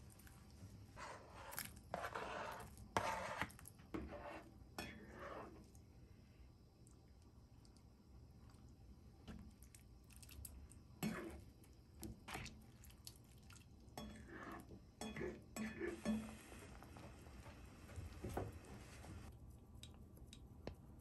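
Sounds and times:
broth sloshing and simmering: 9.2 - 14.8
ladle scraping a frying pan: 11.0 - 11.4.

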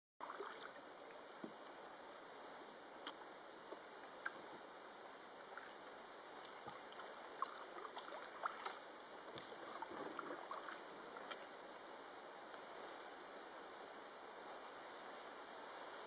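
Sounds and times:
water drips and splashes: 0.2 - 1.1, 5.4 - 11.5
steady low hiss: 0.2 - 16.0.

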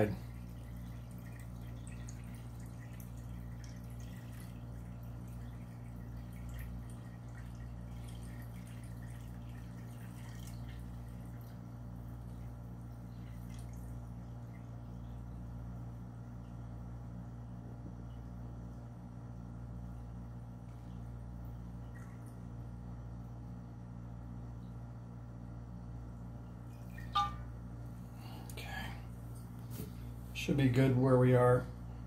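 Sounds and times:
liquid pouring into metal bowl: 0.0 - 12.6
faint drips: 0.0 - 15.3
steady low hum: 0.0 - 32.0.

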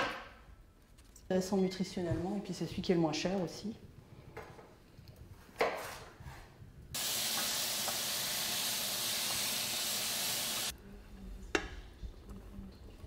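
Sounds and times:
food sizzling in pan: 7.0 - 10.7.

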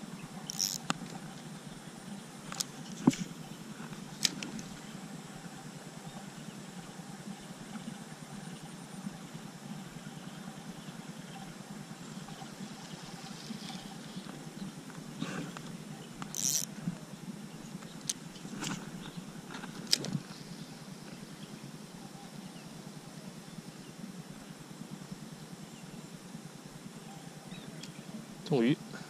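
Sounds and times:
low background noise: 0.0 - 29.0
fishing line hiss: 0.3 - 5.6, 12.2 - 14.5, 15.2 - 16.8
fishing reel cranking: 0.4 - 1.0, 16.2 - 16.8.

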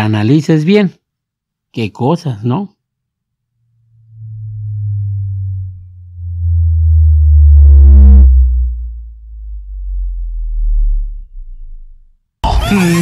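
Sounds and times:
subwoofer bass sine sweep: 3.4 - 12.4
short buzz: 3.7 - 12.2.

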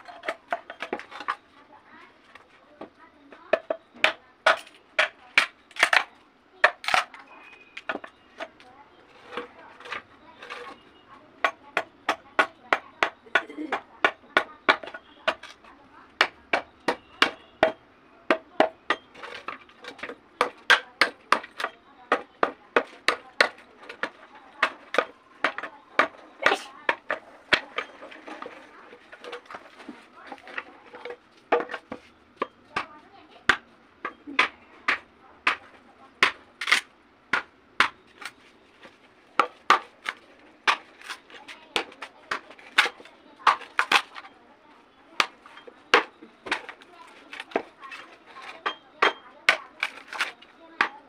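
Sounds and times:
knife chopping bamboo: 3.5 - 8.6, 11.4 - 28.4, 29.1 - 44.3, 45.2 - 51.0
blade chopping bamboo: 33.5 - 38.4, 39.4 - 44.3, 45.2 - 51.0.

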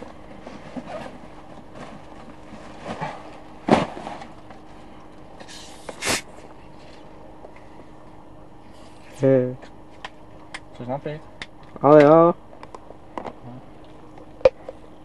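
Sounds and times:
people rustling inside a tent: 0.0 - 8.0, 8.6 - 10.0.

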